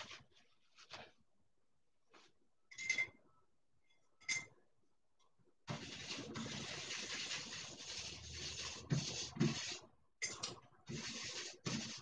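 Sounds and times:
paintbrush scrubbing paint: 5.7s - 10.0s, 10.8s - 12.0s.

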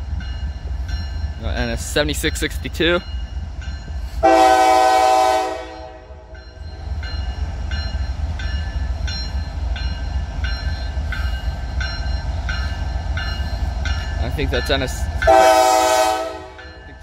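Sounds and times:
locomotive bell ringing: 0.0s - 4.5s, 5.5s - 17.0s
locomotive air horn blast: 4.2s - 6.2s, 15.3s - 16.6s.

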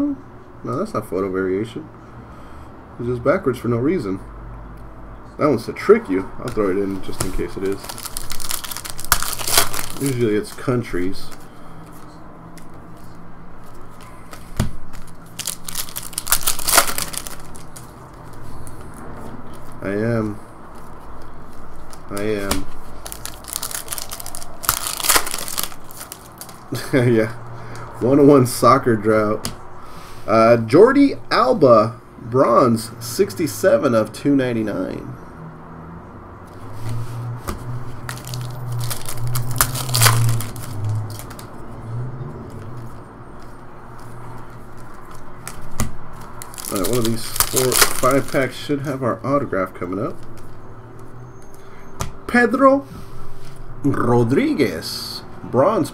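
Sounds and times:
wrapper crinkling and tearing: 6.4s - 11.5s, 13.6s - 18.4s, 20.8s - 26.9s, 38.0s - 41.6s, 44.0s - 48.6s.

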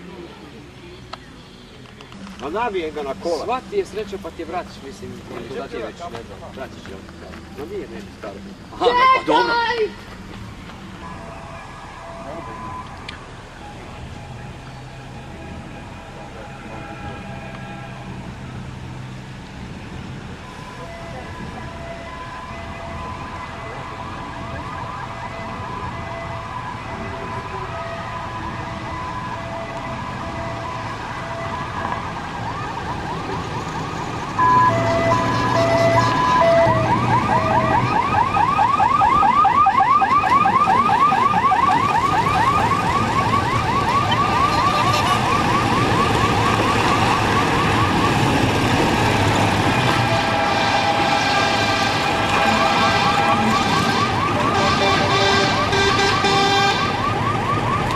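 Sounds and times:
vehicles driving: 0.0s - 57.9s
electronic siren: 11.0s - 18.6s, 20.4s - 57.9s.

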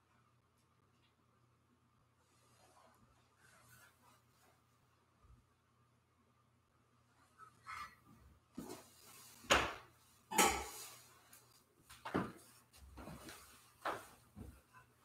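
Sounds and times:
metal vessels clinking and knocking: 10.3s - 11.0s.

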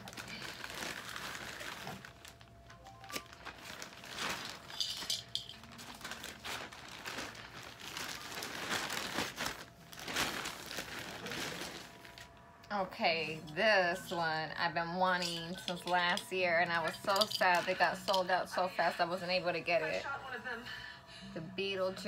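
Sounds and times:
plastic bag crinkling: 0.0s - 12.5s, 15.2s - 19.0s.

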